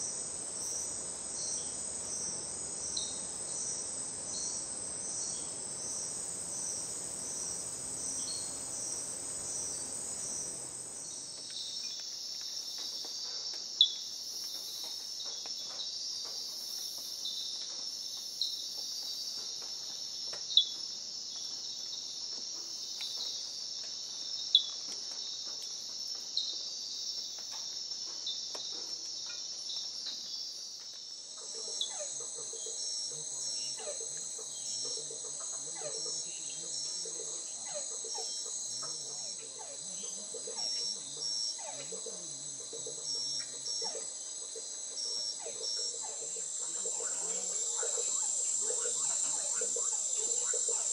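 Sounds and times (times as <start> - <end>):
night insects chorus: 0.0 - 50.9
treefrog calls: 31.4 - 50.9.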